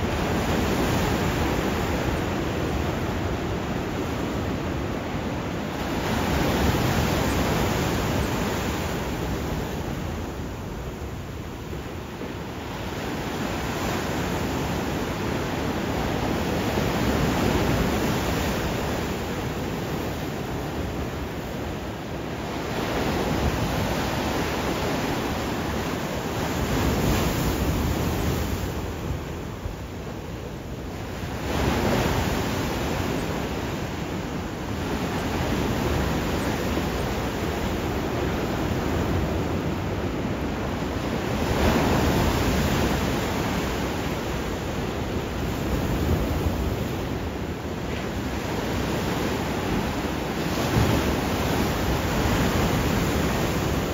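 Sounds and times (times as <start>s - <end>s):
ocean waves breaking: 0.0s - 53.9s.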